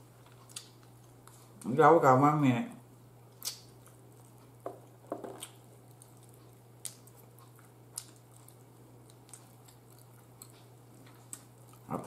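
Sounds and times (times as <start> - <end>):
faint low hum: 0.0 - 12.0
wet mouth smacks while eating: 3.3 - 4.0.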